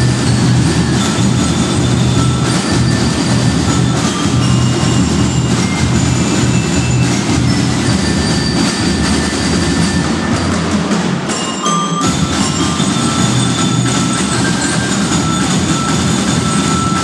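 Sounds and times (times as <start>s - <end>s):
bell lyres ringing: 0.0s - 17.0s
marching snare and bass drums: 0.0s - 17.0s.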